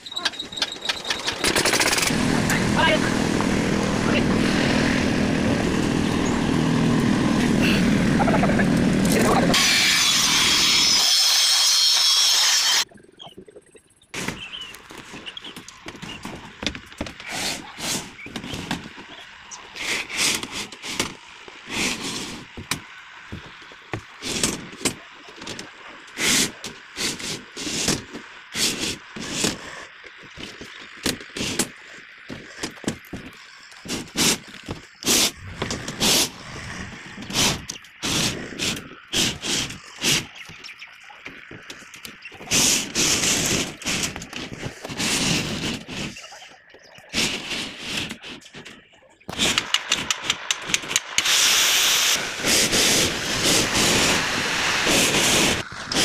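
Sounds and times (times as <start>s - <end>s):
loud steady hissing noise: 1.7s - 12.8s, 15.8s - 40.5s, 41.2s - 46.1s, 49.3s - 56.0s.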